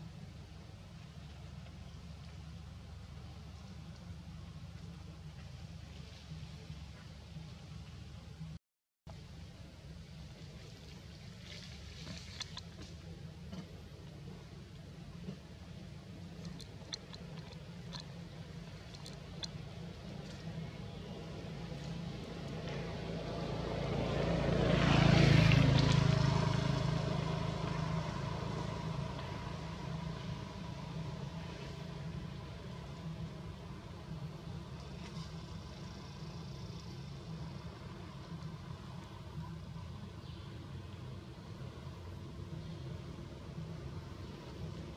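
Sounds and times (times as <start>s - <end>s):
low engine hum: 0.0s - 44.9s
steady low rumble: 0.0s - 44.9s
vehicle passing by: 15.0s - 44.9s.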